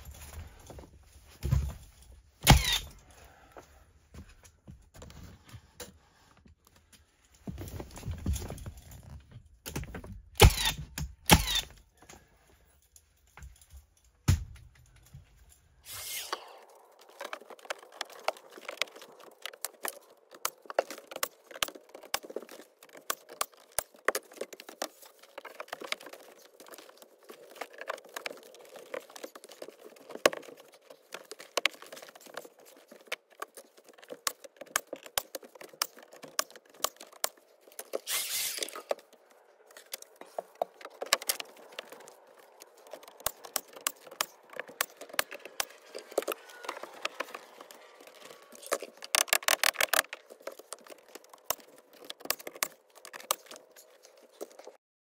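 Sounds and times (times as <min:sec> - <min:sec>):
nail gun bangs: 0:02.4 - 0:02.9, 0:10.4 - 0:11.7.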